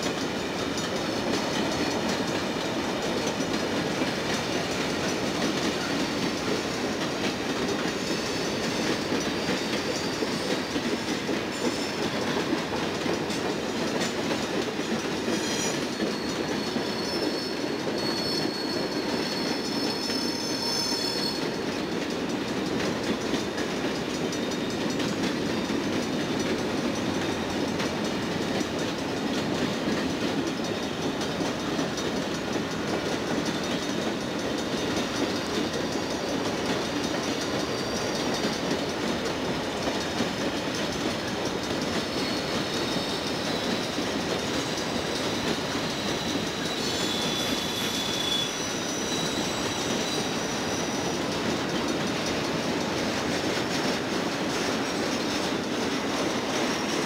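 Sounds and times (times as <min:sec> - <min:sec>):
freight train cars rolling past: 0:00.0 - 0:57.0
high wheel squeals: 0:07.9 - 0:12.4, 0:15.2 - 0:21.7, 0:30.6 - 0:38.7, 0:41.9 - 0:53.0.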